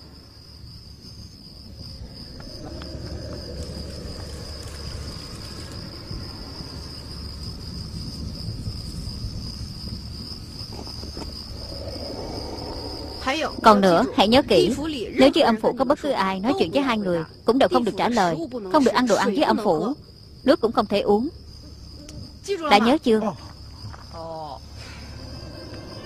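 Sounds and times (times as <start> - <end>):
crickets trilling: 0.0 - 26.0
low rumble: 1.6 - 15.1.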